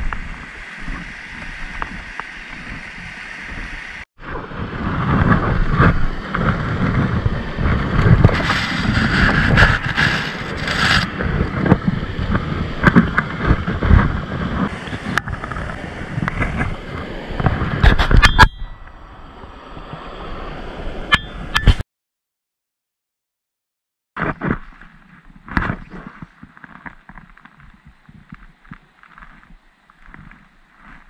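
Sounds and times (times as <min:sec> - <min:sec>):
water rushing over rocks: 0:00.0 - 0:18.8
wind buffeting microphone: 0:00.0 - 0:21.8.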